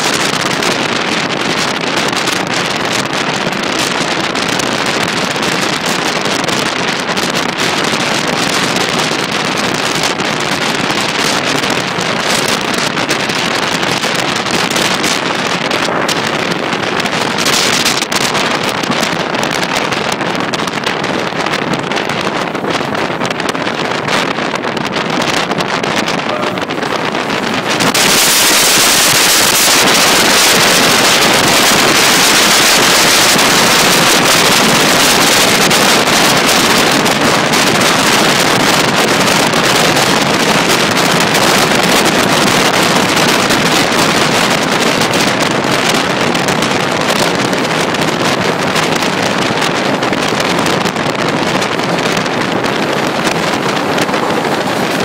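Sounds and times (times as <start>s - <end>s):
air buffeting microphone: 0.0s - 55.0s
passenger train rushing: 18.4s - 55.0s.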